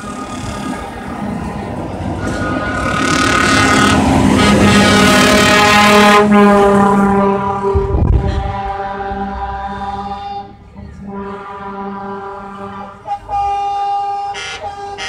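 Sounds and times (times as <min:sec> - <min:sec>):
truck air horns: 0:00.0 - 0:01.0, 0:02.2 - 0:15.0
truck engine passing: 0:00.0 - 0:15.0.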